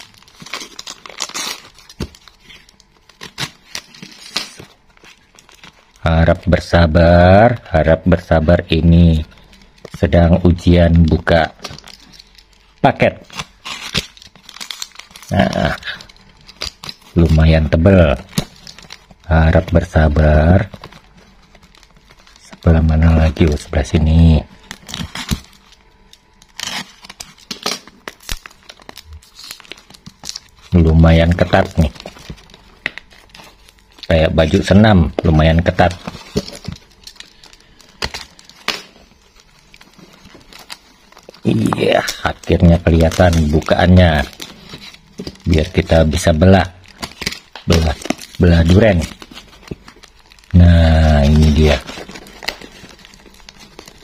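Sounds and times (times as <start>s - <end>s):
plastic mailer crinkling and tearing: 0.0s - 54.0s.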